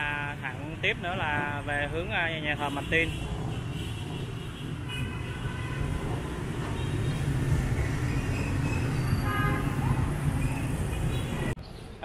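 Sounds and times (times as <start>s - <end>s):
traffic rumble: 0.0s - 12.0s
motorbike engines passing: 0.2s - 11.6s.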